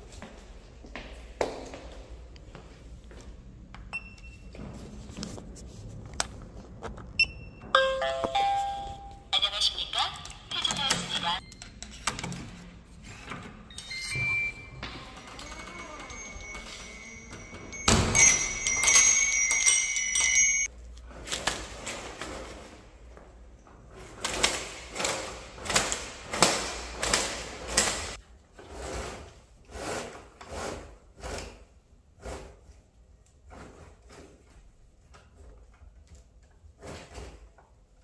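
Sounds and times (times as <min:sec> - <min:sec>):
door bells jingling: 0:07.7 - 0:09.3, 0:13.7 - 0:20.7
blinds rasping up by cords: 0:10.8 - 0:32.4.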